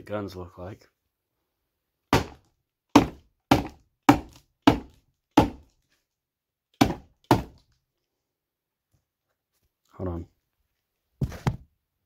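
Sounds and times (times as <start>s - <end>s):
knife striking cardboard box: 2.2s - 5.7s, 6.8s - 7.6s.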